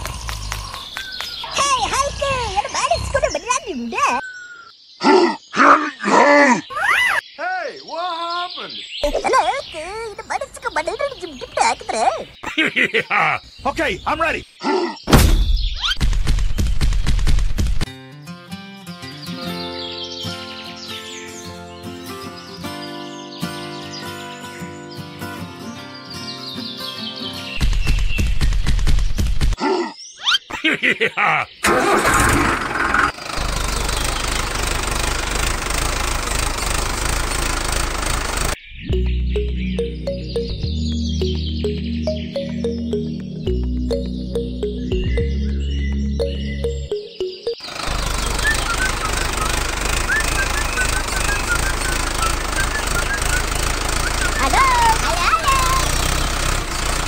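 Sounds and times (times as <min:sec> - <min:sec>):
tractor engine starting and running: 0:31.6 - 0:38.6, 0:47.5 - 0:57.0
small motor rattling and humming: 0:32.2 - 0:38.6, 0:47.6 - 0:57.0.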